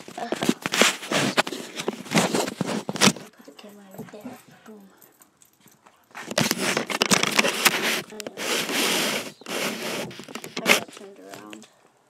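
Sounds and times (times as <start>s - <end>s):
fabric rubbing on microphone: 0.0s - 3.3s, 6.2s - 11.6s.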